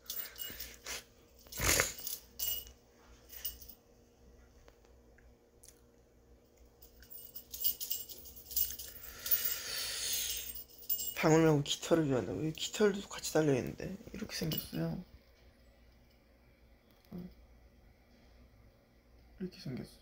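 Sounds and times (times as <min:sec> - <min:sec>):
small bell jingling: 0:00.0 - 0:03.8, 0:06.8 - 0:15.1.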